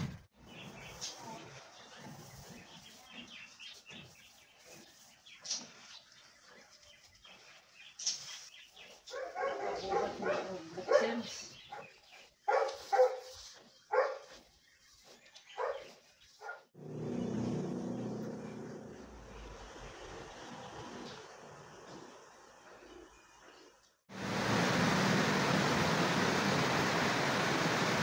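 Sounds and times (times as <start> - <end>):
dog barking: 9.1 - 13.3, 13.9 - 14.3, 15.6 - 16.7.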